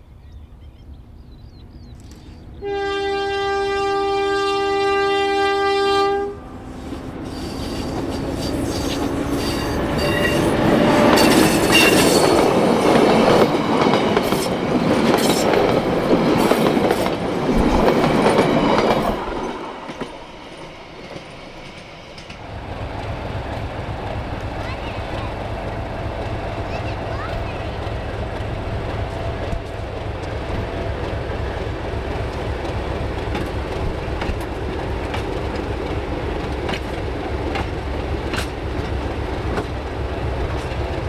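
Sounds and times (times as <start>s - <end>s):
train rumble: 0.0s - 41.0s
locomotive horn blast: 2.6s - 7.8s
wheels clacking on rails: 7.2s - 41.0s.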